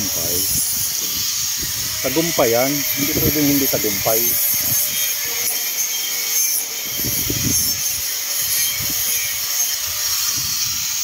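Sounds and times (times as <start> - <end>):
paint spray gun hissing: 0.0 - 5.0.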